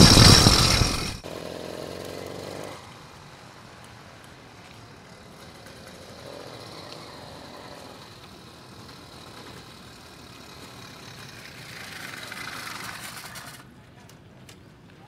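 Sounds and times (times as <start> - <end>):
motorized bicycle engine: 0.0 - 1.2, 5.2 - 13.6.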